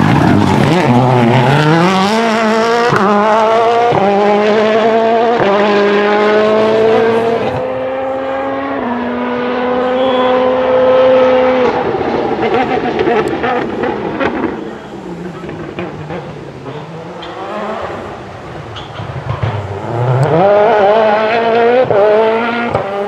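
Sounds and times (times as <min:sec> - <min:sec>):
rally car engine accelerating: 0:00.0 - 0:23.0.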